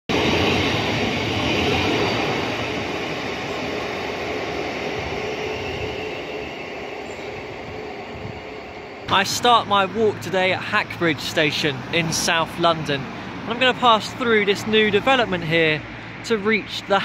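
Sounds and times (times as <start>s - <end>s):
train rail rumble: 0.1s - 17.0s.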